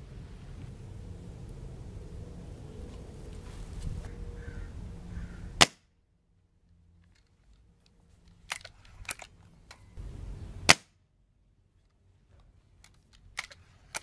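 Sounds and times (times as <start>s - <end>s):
air rifle shots: 5.6s - 5.8s, 10.6s - 10.9s.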